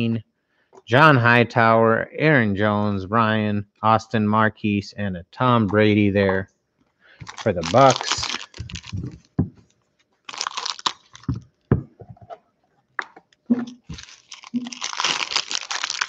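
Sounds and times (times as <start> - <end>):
foil wrapper tearing and crinkling: 7.2 - 9.3, 10.3 - 11.3, 13.7 - 16.0.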